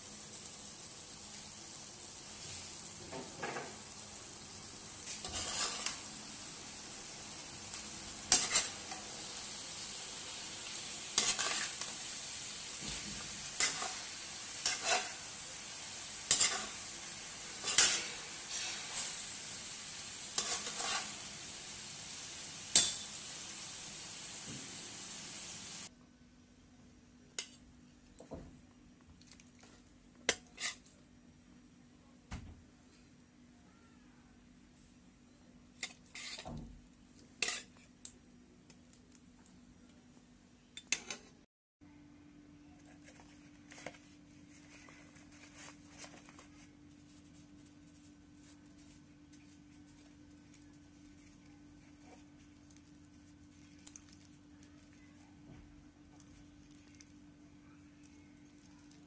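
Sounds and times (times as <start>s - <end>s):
food sizzling in a wok: 0.0s - 25.9s, 30.3s - 30.9s, 35.8s - 36.8s, 37.4s - 37.8s
utensil scraping a pan: 5.1s - 6.0s, 8.3s - 9.0s, 11.2s - 11.9s, 13.6s - 15.3s, 16.2s - 16.8s, 17.6s - 19.2s, 20.3s - 21.3s, 30.3s - 30.9s, 35.8s - 36.5s.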